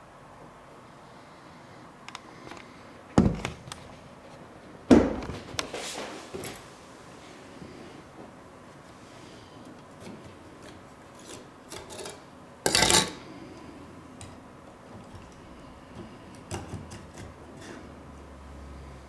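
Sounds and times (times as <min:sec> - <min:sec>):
metal scraping on table: 0:17.0 - 0:18.0.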